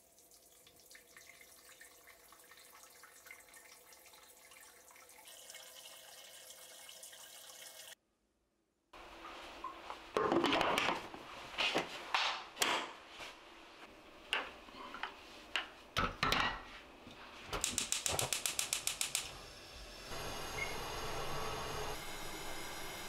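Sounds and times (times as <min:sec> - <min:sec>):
gas stove igniter ticking: 0:17.6 - 0:19.3
gas burner hissing: 0:17.6 - 0:23.0.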